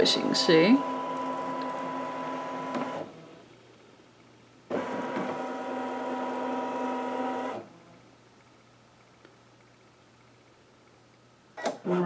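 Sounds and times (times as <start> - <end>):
embroidery machine motor hum: 0.0 - 3.5, 4.7 - 8.0.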